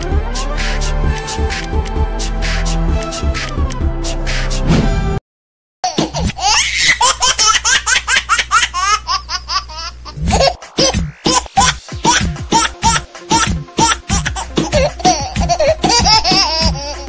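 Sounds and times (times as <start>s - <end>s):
intro music: 0.0s - 5.2s, 10.2s - 17.0s.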